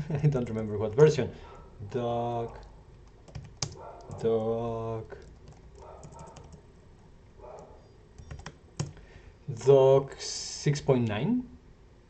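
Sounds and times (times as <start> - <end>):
keyboard typing: 2.5 - 6.7, 7.5 - 9.0.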